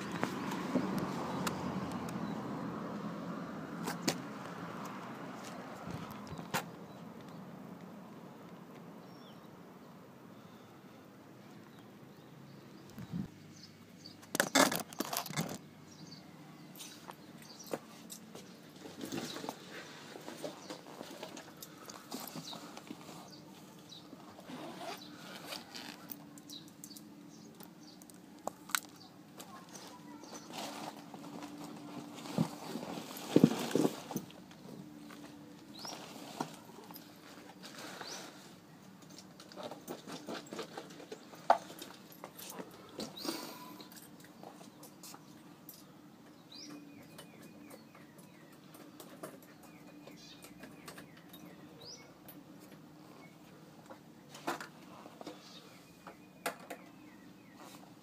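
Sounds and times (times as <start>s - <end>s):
bird singing: 9.0s - 9.6s, 10.3s - 15.2s, 15.8s - 30.5s, 42.8s - 52.4s, 53.0s - 57.9s
backpack fabric rustling: 24.3s - 26.1s.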